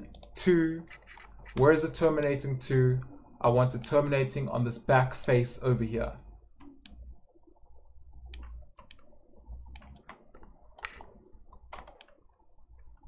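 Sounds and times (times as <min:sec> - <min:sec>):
faint low hum: 0:00.0 - 0:10.0
computer mouse clicking: 0:00.1 - 0:00.3, 0:08.3 - 0:09.1, 0:09.7 - 0:10.2.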